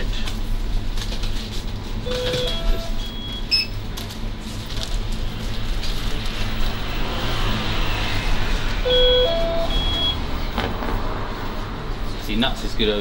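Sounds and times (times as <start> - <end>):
two-note electronic beep: 8.9 - 10.2.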